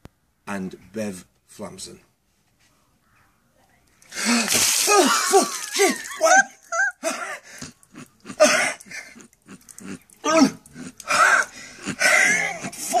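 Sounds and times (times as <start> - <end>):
man gasping and groaning: 4.1 - 5.4, 7.0 - 13.0.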